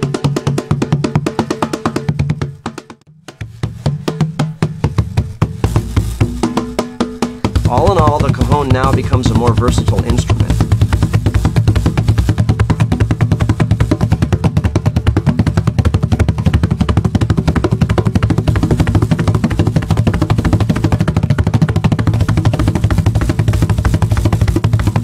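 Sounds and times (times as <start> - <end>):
cajon played by hand: 0.0 - 25.0
snare rattle buzz: 4.9 - 14.2, 22.0 - 25.0.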